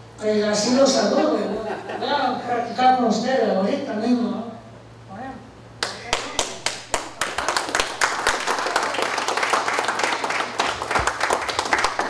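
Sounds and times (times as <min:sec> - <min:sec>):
audience clapping: 0:05.8 - 0:12.0.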